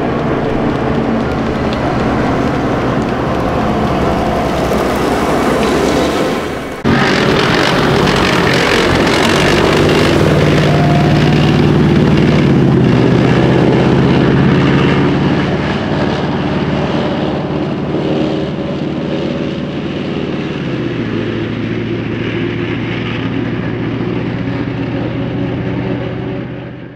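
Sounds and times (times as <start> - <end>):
diesel engine humming: 0.0 - 26.9.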